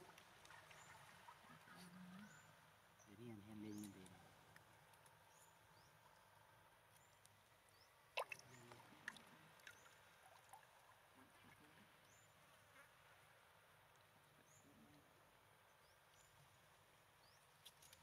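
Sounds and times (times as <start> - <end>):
small splashes and knocks: 8.1 - 11.5, 17.6 - 18.0
sharp water splash: 8.2 - 10.8.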